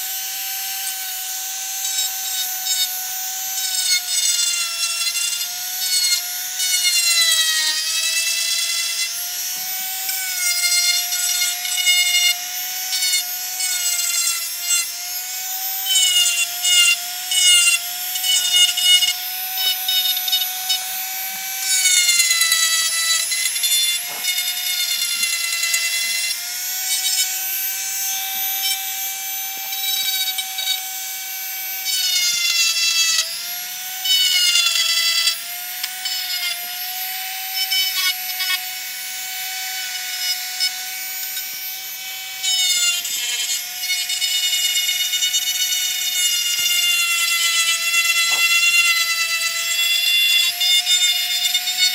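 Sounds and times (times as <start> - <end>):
rotary tool whining: 0.0 - 51.9.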